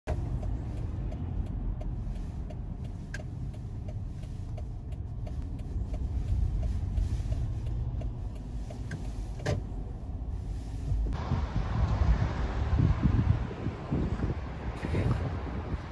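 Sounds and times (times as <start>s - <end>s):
car cabin road rumble: 0.0s - 15.9s
turn signal ticking: 0.1s - 11.2s.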